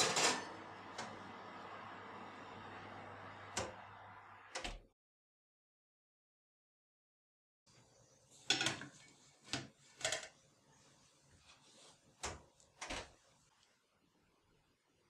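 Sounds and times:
metal tray clattering on rack: 0.0s - 0.7s.

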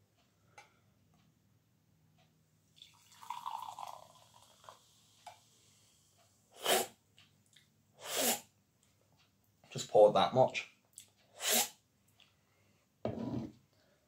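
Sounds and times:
fizzy drink pouring into glass: 2.8s - 4.9s.

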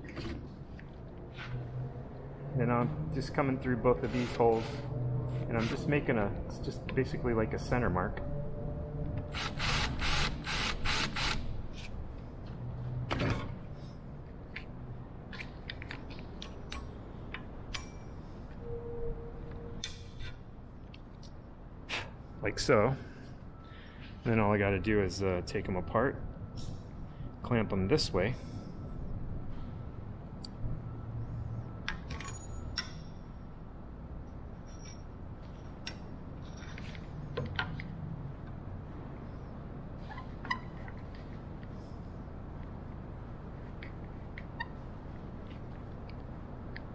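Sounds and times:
metal brackets clicking and clinking: 15.3s - 18.3s.

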